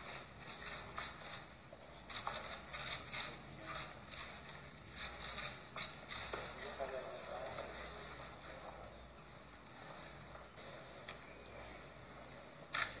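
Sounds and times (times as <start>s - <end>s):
camera shutters clicking: 12.7s - 13.0s.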